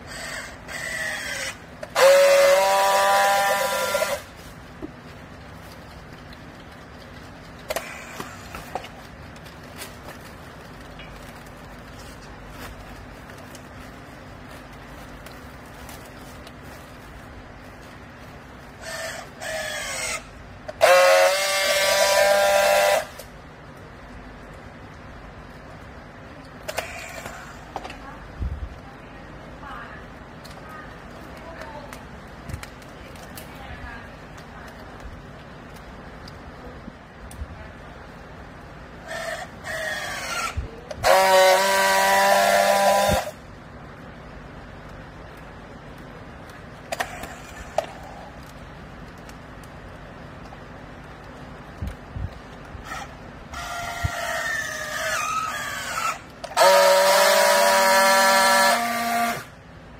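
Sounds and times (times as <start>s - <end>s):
strapping tool motor whine: 0.1s - 4.3s, 18.8s - 23.3s, 39.0s - 43.4s, 52.8s - 59.5s.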